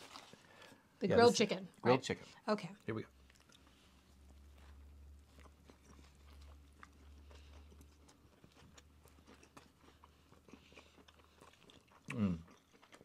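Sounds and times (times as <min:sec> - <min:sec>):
low steady hum: 0:00.0 - 0:13.0
faint chewing: 0:02.6 - 0:13.0.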